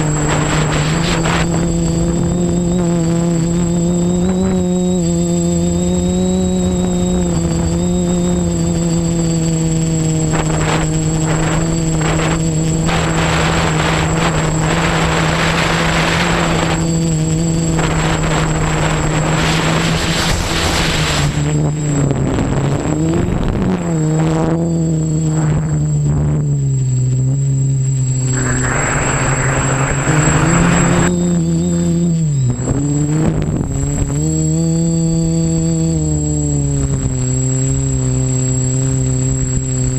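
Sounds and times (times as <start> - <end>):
rushing noise: 0.0 - 5.6, 6.4 - 21.8, 28.0 - 31.4
drone propellers buzzing: 0.0 - 39.9
high whine: 0.0 - 39.9.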